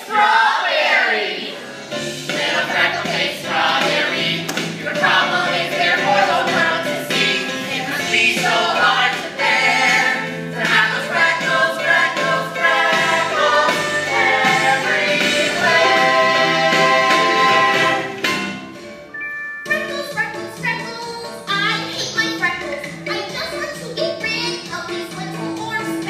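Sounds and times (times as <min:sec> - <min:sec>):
voices singing together: 0:00.0 - 0:18.4
instrumental accompaniment: 0:01.6 - 0:21.5.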